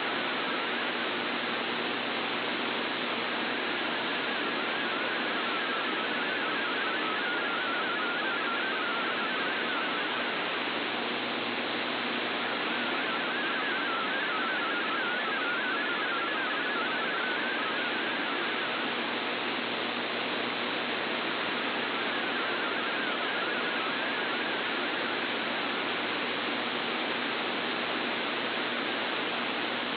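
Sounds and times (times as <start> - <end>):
radio static hiss: 0.0 - 29.9
warbling digital data tones: 2.6 - 25.9.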